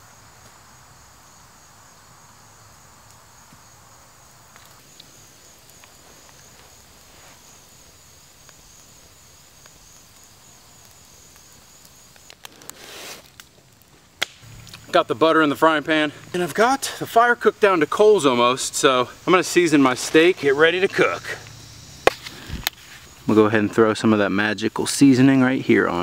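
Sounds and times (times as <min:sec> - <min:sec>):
campfire crackling: 0:00.0 - 0:26.0
insects trilling: 0:00.0 - 0:26.0
short rustle: 0:12.5 - 0:13.4.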